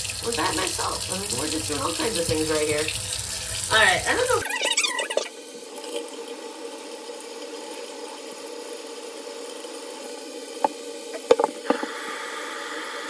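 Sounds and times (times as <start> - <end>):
short knocks: 11.2 - 11.9.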